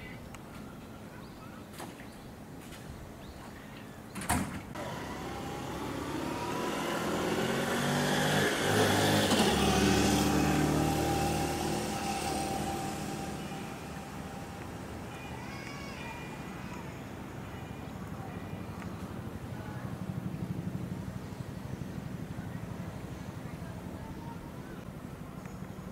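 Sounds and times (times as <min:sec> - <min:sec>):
vehicle passing by: 0:04.7 - 0:25.9.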